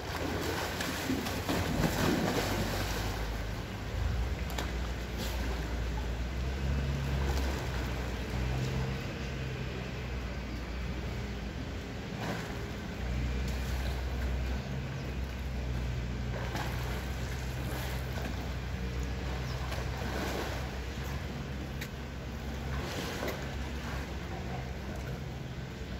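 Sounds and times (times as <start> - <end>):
steady low rumble: 0.0 - 25.9
water splashing and sloshing: 0.0 - 25.9.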